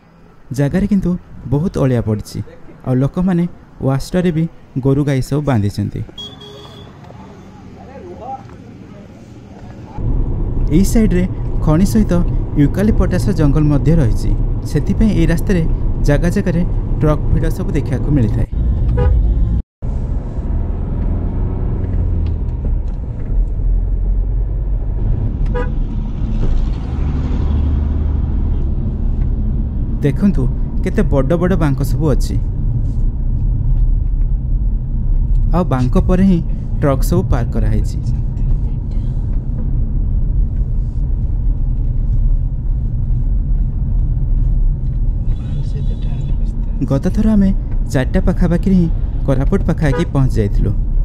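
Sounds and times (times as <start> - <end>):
engine and road rumble: 0.0 - 51.0
short car horn toot: 6.2 - 7.0.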